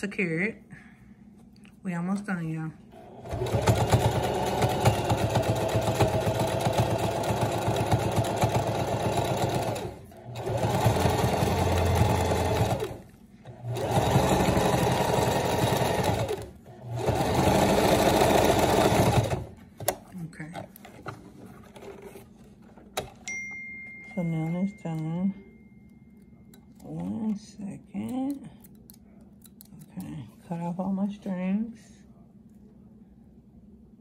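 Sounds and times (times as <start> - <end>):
sewing machine running: 3.0 - 19.5.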